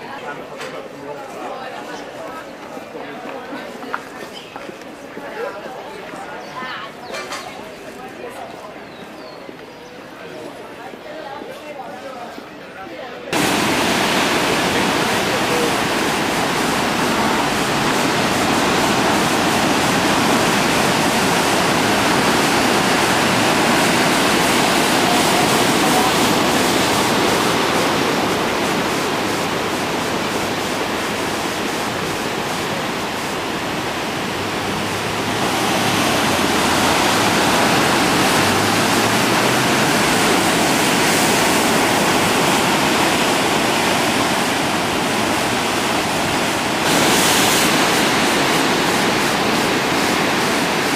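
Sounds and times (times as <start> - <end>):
surf breaking over rocks: 13.3 - 50.9.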